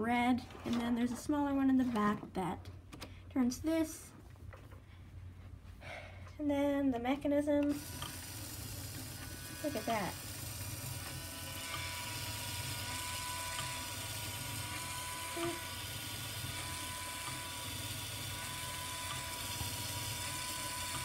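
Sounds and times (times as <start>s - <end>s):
toy motor whirring and whining: 7.7s - 21.0s.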